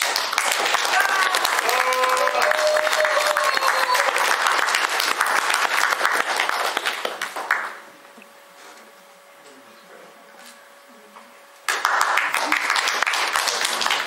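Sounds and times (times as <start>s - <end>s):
audience applauding: 0.0s - 7.8s, 11.7s - 14.0s.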